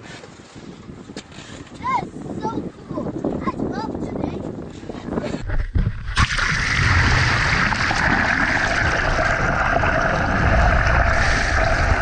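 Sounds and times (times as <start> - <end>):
muffled underwater water rushing: 5.4 - 12.0.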